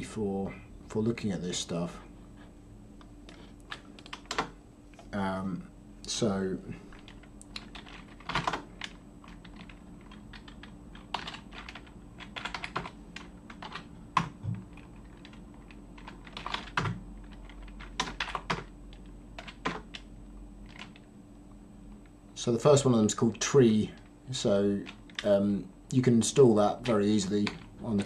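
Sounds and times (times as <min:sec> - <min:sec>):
typing on computer keyboard: 0:03.7 - 0:04.5, 0:07.0 - 0:20.1.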